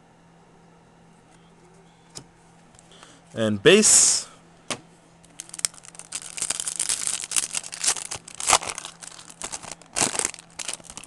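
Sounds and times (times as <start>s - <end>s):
foil wrapper crinkling: 5.3s - 11.0s
foil wrapper ripping: 5.4s - 11.0s.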